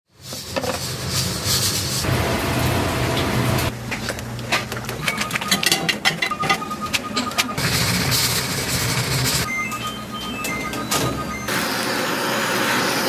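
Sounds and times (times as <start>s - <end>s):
noodle boiler rushing and humming: 0.2s - 5.3s, 6.4s - 9.5s, 11.3s - 13.0s
metal baskets clinking: 4.0s - 7.6s.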